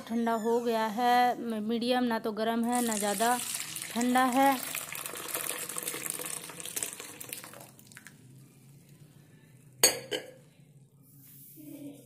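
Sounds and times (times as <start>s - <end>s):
milk pouring and splashing into bowl: 2.7s - 8.2s.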